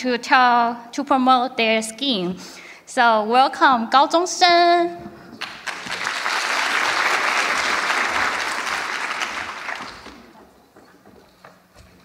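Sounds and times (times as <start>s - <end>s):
audience applauding: 5.4s - 10.5s.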